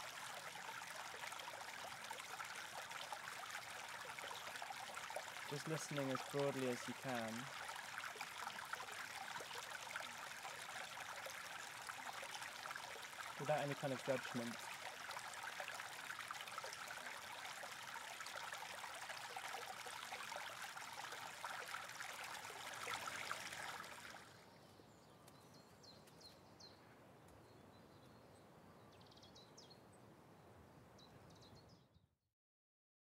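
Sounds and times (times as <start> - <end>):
stream rushing over stones: 0.0 - 24.4.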